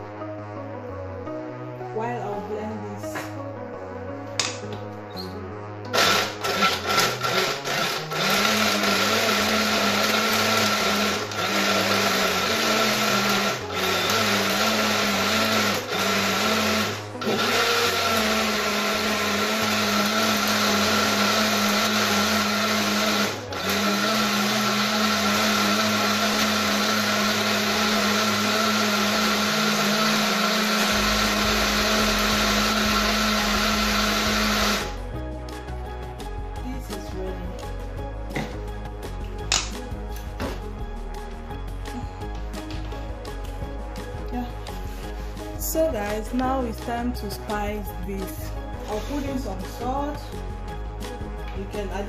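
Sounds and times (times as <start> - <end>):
blender motor running: 5.9 - 35.1.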